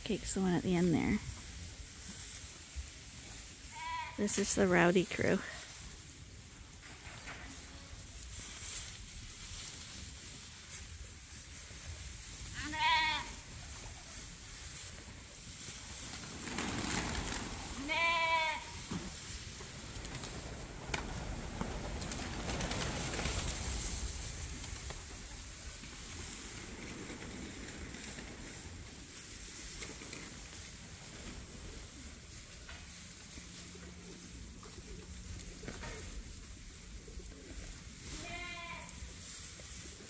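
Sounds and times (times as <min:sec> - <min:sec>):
straw rustling: 0:04.2 - 0:05.6.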